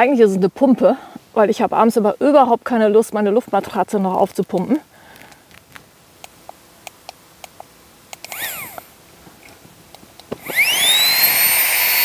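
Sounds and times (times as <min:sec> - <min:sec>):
electric pump motor whine: 0:08.2 - 0:09.0, 0:10.3 - 0:12.0.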